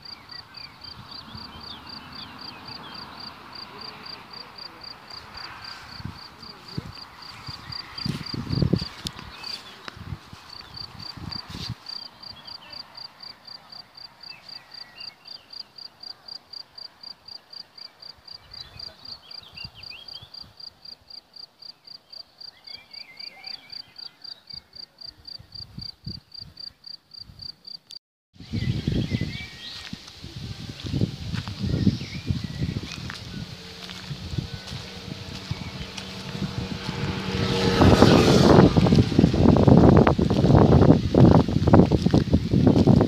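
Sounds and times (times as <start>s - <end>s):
cricket chirping: 0.0s - 9.1s, 10.5s - 28.0s
low rumbling noise: 30.6s - 42.8s.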